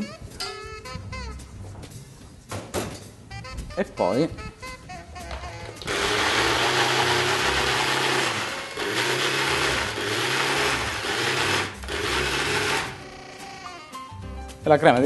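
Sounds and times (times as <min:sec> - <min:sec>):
electric mixer running: 0:05.8 - 0:13.5.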